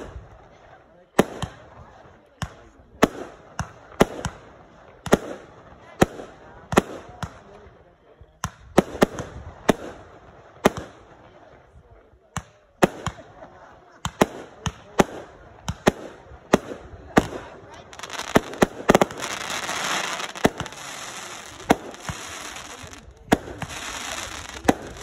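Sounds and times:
fireworks bangs: 14.0s - 25.0s.

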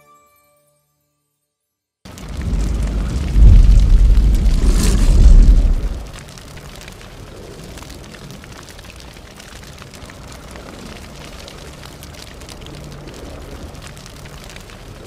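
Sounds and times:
low rumble: 2.1s - 6.2s
faint scattered crackles: 2.1s - 15.0s.

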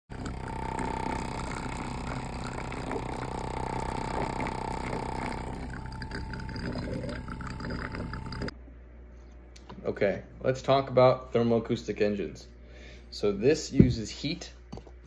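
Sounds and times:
high tone with fast buzz: 0.1s - 8.5s
water bubbling: 0.2s - 8.5s.

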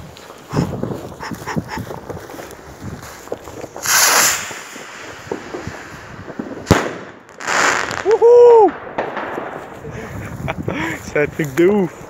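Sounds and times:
firework launch rushing: 3.6s - 10.0s
firework bang: 3.8s - 10.5s.

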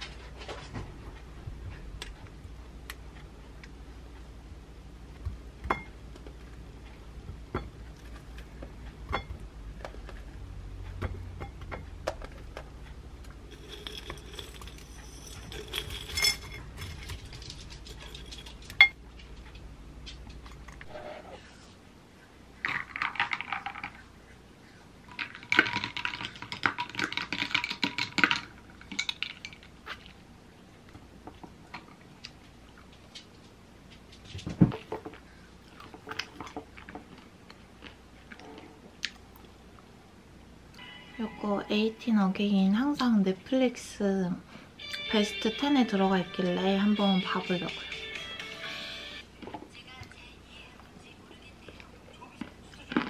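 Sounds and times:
granola rattling into bowl: 13.5s - 18.8s
metal spoon scraping glass jar: 13.5s - 18.8s
spoon clattering in bowl: 13.5s - 19.0s.

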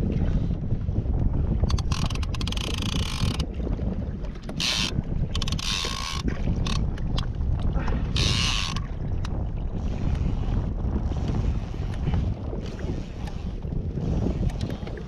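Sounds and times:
wind noise on microphone: 0.0s - 15.0s
fishing reel drag rasping: 1.7s - 3.4s, 4.6s - 6.8s, 8.1s - 8.8s, 12.6s - 13.6s.

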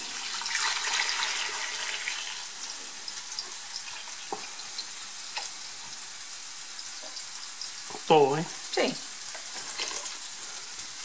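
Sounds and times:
broth pouring into a stockpot: 0.0s - 4.9s.

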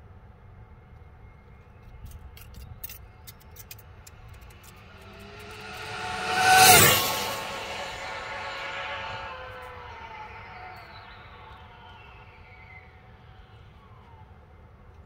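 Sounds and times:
rc car motor whine passing: 4.1s - 13.3s.

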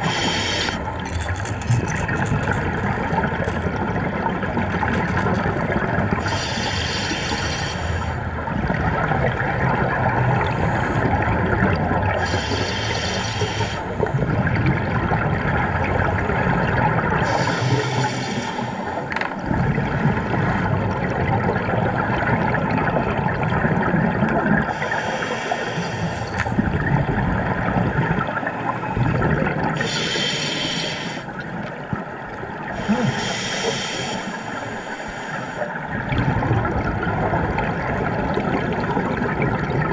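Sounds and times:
underwater rumble: 25.8s - 29.9s, 35.4s - 39.9s.

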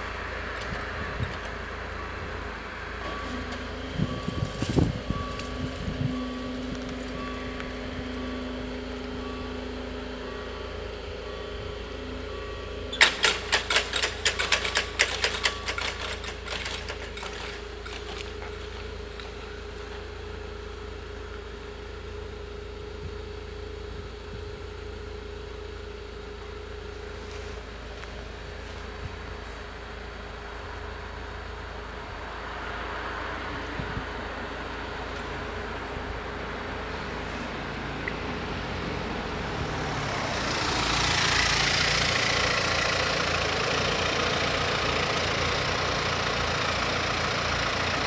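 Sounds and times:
steady low hum: 0.0s - 13.5s
level crossing bell dinging: 3.1s - 13.3s
barriers clattering down: 13.0s - 18.6s.

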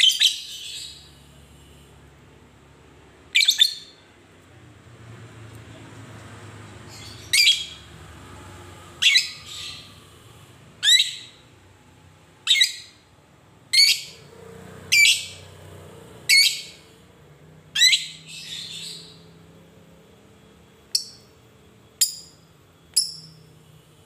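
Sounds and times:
bird shrill calls: 6.9s - 7.9s, 10.8s - 11.4s.

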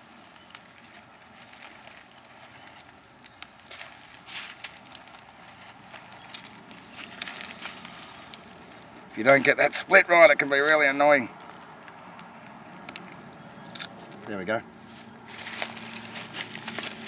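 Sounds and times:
wood splintering crackles: 0.0s - 14.4s, 15.0s - 17.0s
sharp wood snaps: 1.6s - 9.1s, 11.4s - 14.3s.

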